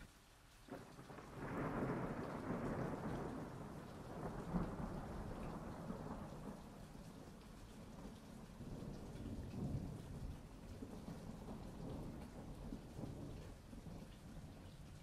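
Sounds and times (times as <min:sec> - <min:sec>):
rain hiss: 0:00.0 - 0:15.0
thunder rolling: 0:00.7 - 0:06.6.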